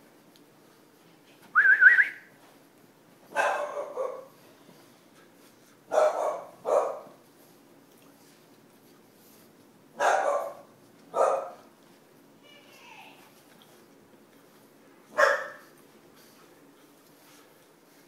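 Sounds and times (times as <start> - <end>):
puppy barks: 3.3 - 4.4, 5.9 - 7.2, 10.0 - 11.7, 15.1 - 15.7.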